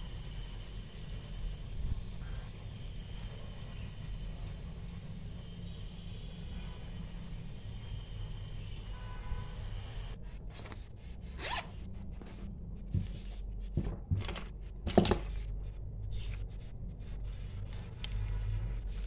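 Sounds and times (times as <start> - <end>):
zipper being pulled open: 10.6 - 11.9
rustling and clicks of items: 11.8 - 15.7.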